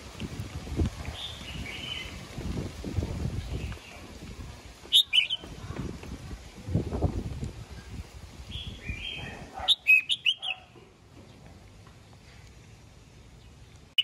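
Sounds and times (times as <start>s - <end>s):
bulbul whistled song: 4.9s - 5.5s, 8.5s - 10.7s.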